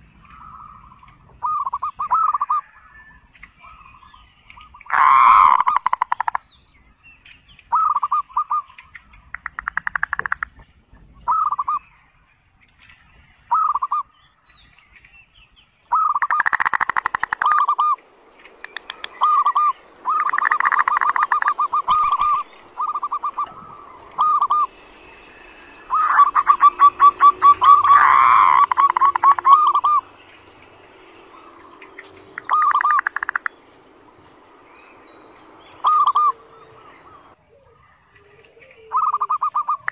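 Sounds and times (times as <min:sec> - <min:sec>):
dove rolling rattle call: 0:00.0 - 0:06.5, 0:07.7 - 0:12.0, 0:12.8 - 0:14.2, 0:15.9 - 0:39.9
dove cooing: 0:00.4 - 0:02.8, 0:15.9 - 0:18.0, 0:18.6 - 0:30.2, 0:31.0 - 0:33.5, 0:35.8 - 0:39.9.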